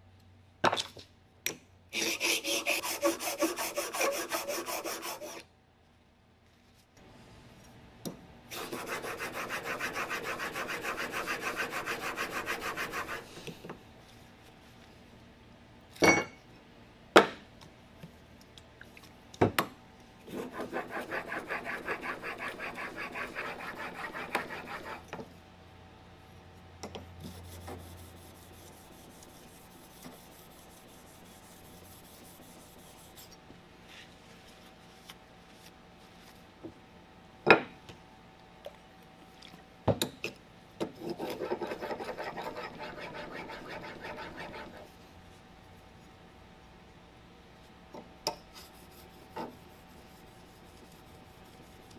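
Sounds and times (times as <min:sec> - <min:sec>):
blade rubbing on sharpening stone: 0:02.0 - 0:05.4, 0:20.4 - 0:25.0, 0:41.0 - 0:44.9.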